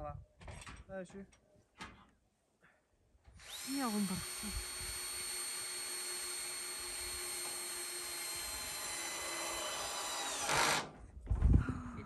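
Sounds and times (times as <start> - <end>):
electric power drill running: 3.4 - 11.0.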